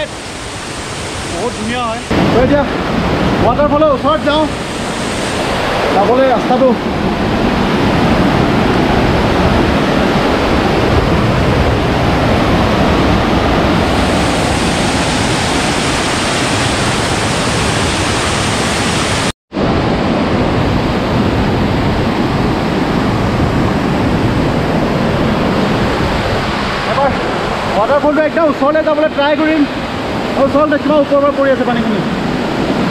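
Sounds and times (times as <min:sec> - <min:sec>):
waterfall roaring: 0:00.0 - 0:32.9.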